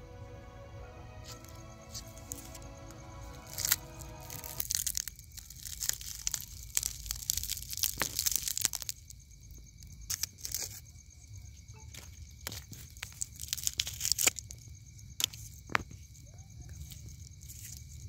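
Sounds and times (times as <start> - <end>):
prawn shell cracking and tearing: 3.5 - 9.1, 12.5 - 14.6.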